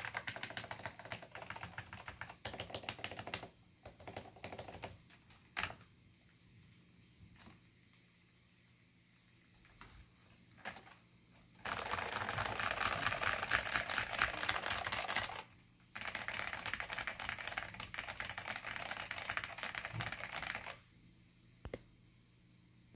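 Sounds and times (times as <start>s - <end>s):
fast keyboard typing clicks: 0.0s - 5.9s, 10.6s - 11.0s, 11.6s - 20.8s.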